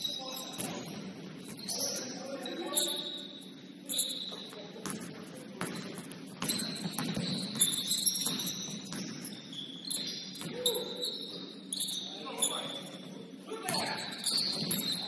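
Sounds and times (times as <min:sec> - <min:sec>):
shoes squeaking on gym floor: 0:00.0 - 0:04.8, 0:06.3 - 0:15.0
murmur of hall: 0:00.0 - 0:15.0
basketball bouncing: 0:04.8 - 0:09.4.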